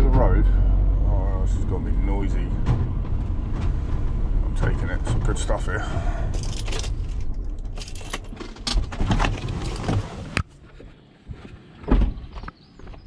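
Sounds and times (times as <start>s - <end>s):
van engine running: 0.0s - 10.8s
keys jangling: 6.3s - 8.8s.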